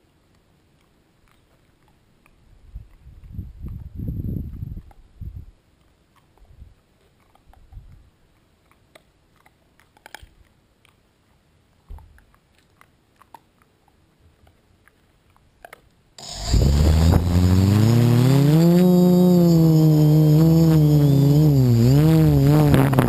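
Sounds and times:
quadcopter motors whining: 16.2 - 23.0.

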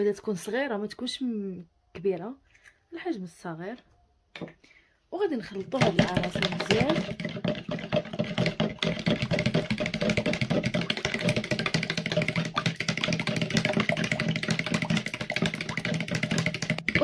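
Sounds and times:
utensil beating liquid in a bowl: 5.5 - 17.0.

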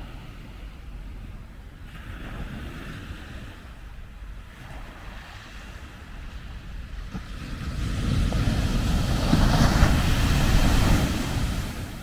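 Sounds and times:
ocean wave crashing on beach: 7.5 - 12.0.

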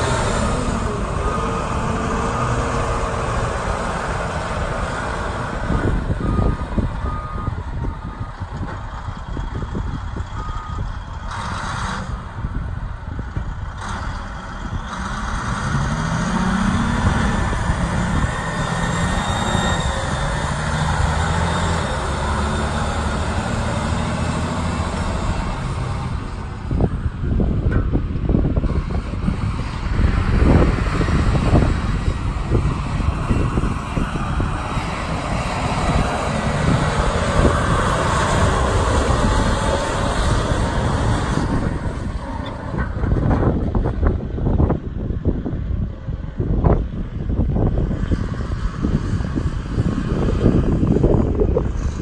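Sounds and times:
diesel engine running: 0.0 - 45.8
reversing alarm beeps: 5.7 - 8.4, 10.4 - 10.9.

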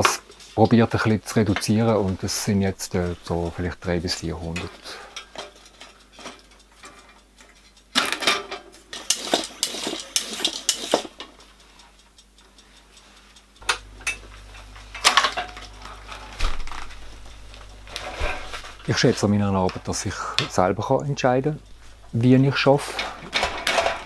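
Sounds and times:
low hum: 13.6 - 24.0
metal tools clinking: 22.5 - 24.0.

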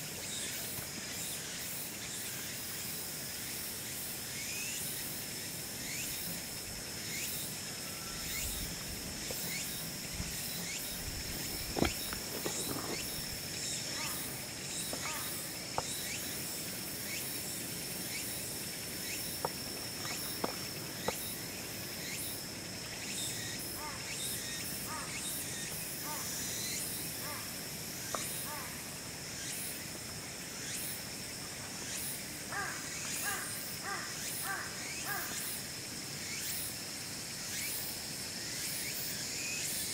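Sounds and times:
high-pitched insect buzz: 0.2 - 29.8.

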